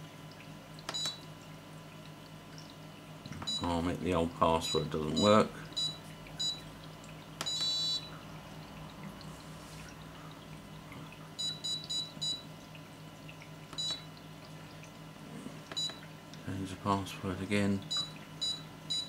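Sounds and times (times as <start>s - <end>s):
buzzer short high beeps: 7.5s - 8.1s, 17.9s - 19.0s.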